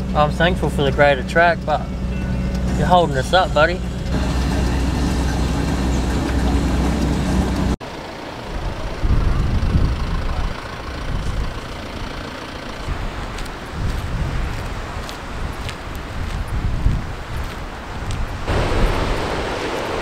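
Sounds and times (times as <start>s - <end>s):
vehicle engine droning: 0.0s - 14.4s
wind rumbling on microphone: 8.4s - 12.2s, 12.8s - 20.0s.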